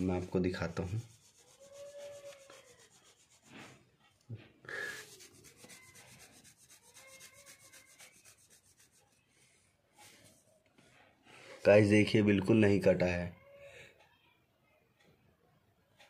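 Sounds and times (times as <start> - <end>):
blade scraping a knitted glove: 0.6 - 4.1, 4.8 - 9.3.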